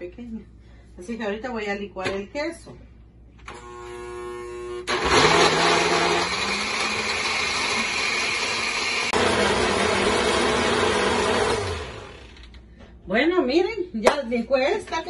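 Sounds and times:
blender whirring: 3.5s - 12.6s.

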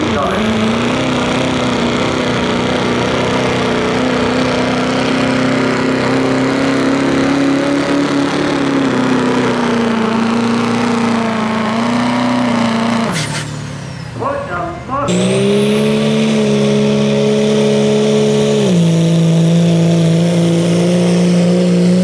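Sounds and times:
diesel engine at full throttle: 0.0s - 22.0s.

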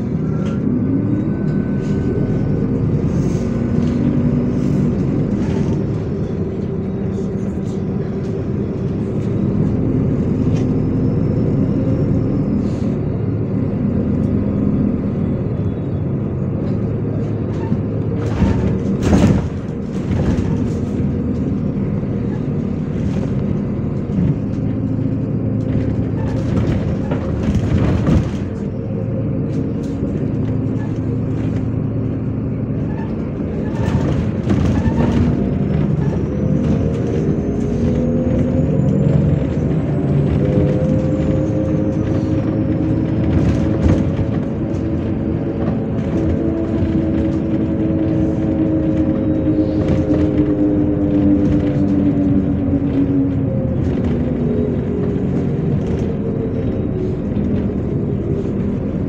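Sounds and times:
bus engine hum: 0.0s - 59.0s
road noise: 0.0s - 59.0s
knocks and rattles: 22.9s - 28.7s, 33.1s - 37.2s.

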